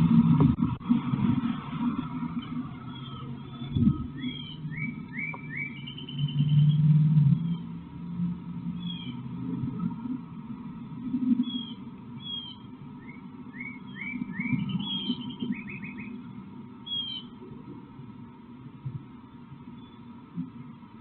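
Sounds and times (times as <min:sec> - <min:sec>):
faint steady hum: 0:00.0 - 0:21.0
uneven low rumble: 0:00.0 - 0:21.0
small birds chirping: 0:02.7 - 0:07.8, 0:08.8 - 0:09.3, 0:11.4 - 0:17.4.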